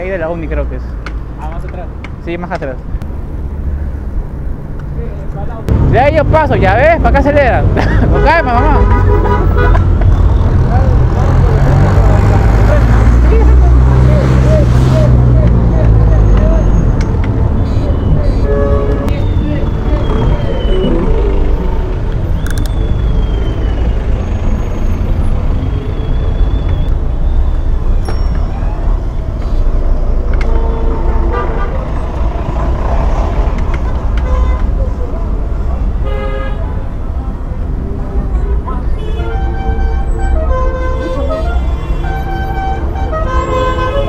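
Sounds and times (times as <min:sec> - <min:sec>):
heavy traffic rumble: 0:00.0 - 0:44.0
held pitched tones: 0:13.9 - 0:25.0
sharp clicks: 0:22.1 - 0:22.8.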